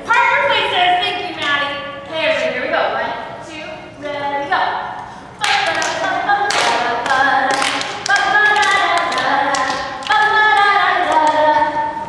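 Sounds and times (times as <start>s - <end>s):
voices singing unaccompanied: 3.5s - 12.0s.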